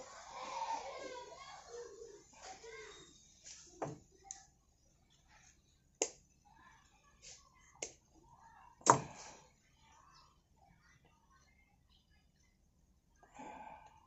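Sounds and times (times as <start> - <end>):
tools tapping and clicking: 8.8 - 9.1.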